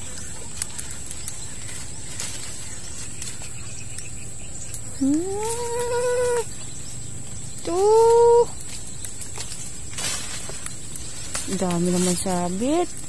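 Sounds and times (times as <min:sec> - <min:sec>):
outdoor background noise: 0:00.0 - 0:13.0
drawn-out animal call: 0:05.0 - 0:08.6.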